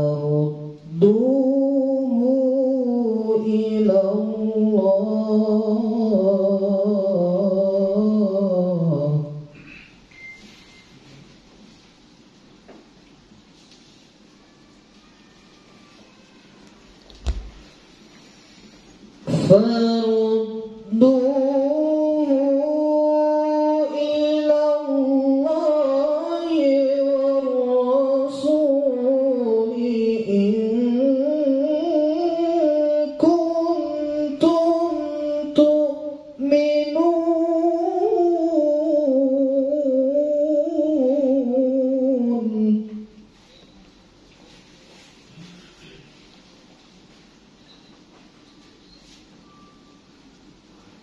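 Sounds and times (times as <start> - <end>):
man reciting melodically: 0.0 - 9.6, 19.2 - 43.2.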